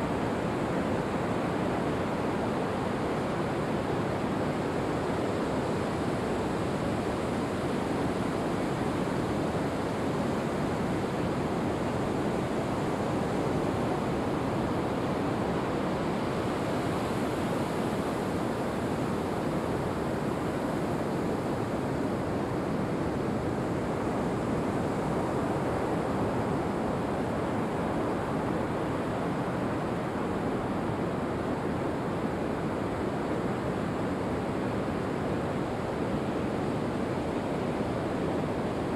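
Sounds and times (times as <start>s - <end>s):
ocean surf on beach: 0.0s - 38.9s.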